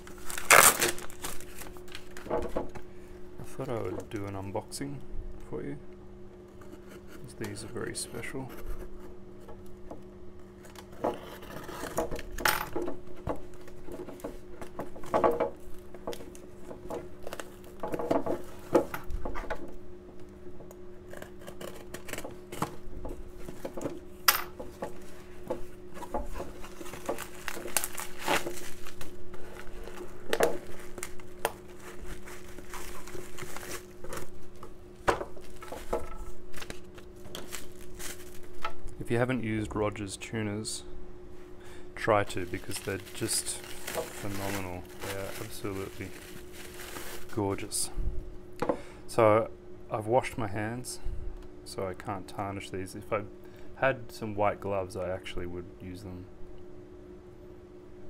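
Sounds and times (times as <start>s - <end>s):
packing tape slit and peeled: 0.0s - 2.3s, 17.2s - 18.6s, 21.1s - 22.8s, 26.0s - 34.7s, 35.4s - 38.6s
bubble wrap crinkling: 0.0s - 2.5s, 13.4s - 19.2s, 24.7s - 38.7s, 42.2s - 47.7s.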